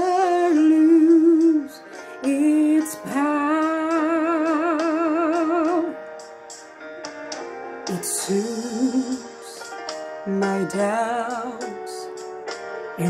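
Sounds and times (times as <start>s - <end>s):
woman singing gospel: 0.0s - 6.0s, 7.9s - 9.7s, 10.3s - 12.1s.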